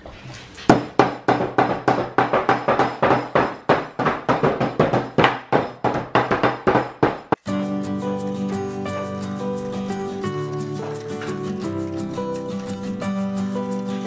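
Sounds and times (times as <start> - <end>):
hammer banging on wooden table: 0.7 - 7.4.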